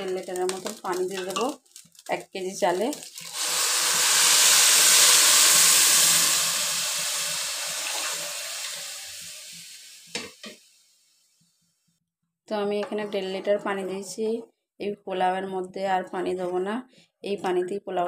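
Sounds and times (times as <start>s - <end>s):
water pouring into a metal pot: 2.9s - 10.2s.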